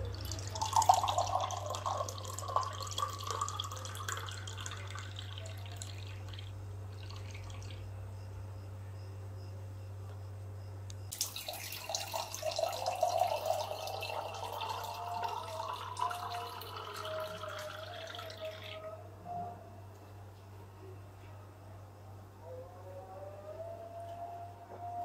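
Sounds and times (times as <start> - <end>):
juice sloshing in a glass: 0.0 - 7.9, 11.1 - 18.8.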